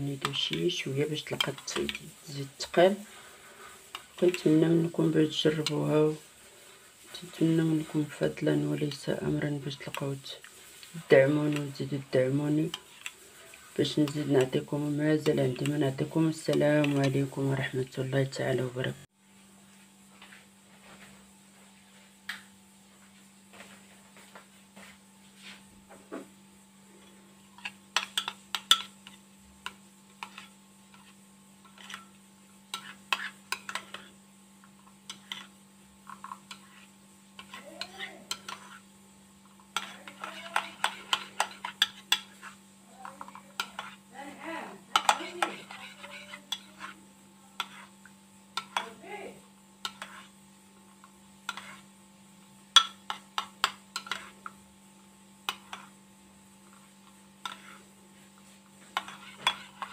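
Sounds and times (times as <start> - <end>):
spoon stirring paste in bowl: 0.0 - 17.8, 27.0 - 44.1, 44.9 - 49.0, 49.8 - 51.9, 52.7 - 54.7, 55.4 - 56.0, 56.6 - 59.9.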